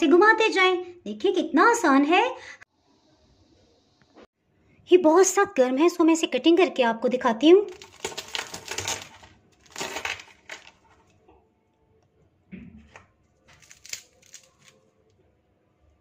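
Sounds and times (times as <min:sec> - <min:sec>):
pastry crackling: 0:07.6 - 0:11.4, 0:13.3 - 0:15.1
knife crunching through pastry crust: 0:07.7 - 0:11.2, 0:13.4 - 0:14.9.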